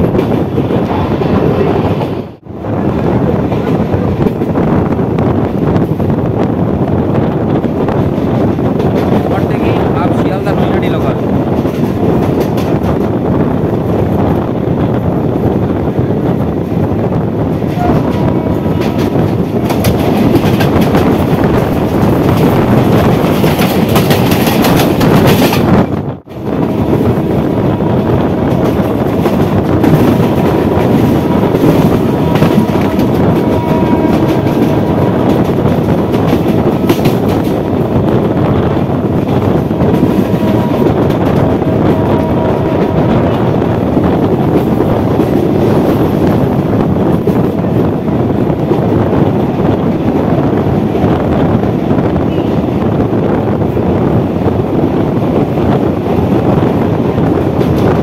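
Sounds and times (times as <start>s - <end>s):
train wheels rumbling on rails: 0.0s - 58.0s
wheels clacking over rail joints: 17.6s - 25.9s, 28.5s - 37.9s.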